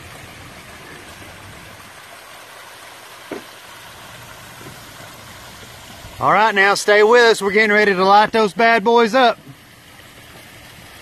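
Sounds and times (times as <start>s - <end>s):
waterfall splashing into pool: 0.0s - 11.0s
short thump: 3.3s - 3.5s.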